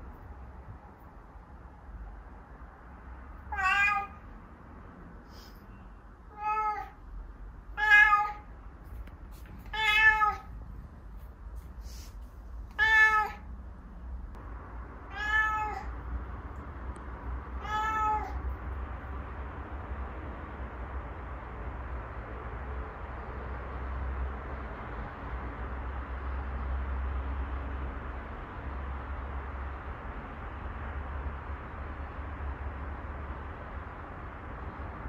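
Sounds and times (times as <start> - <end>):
cat meowing: 3.5 - 4.2, 6.3 - 7.0, 7.7 - 8.5, 9.7 - 10.6, 12.7 - 13.5, 15.1 - 16.0, 17.5 - 18.4.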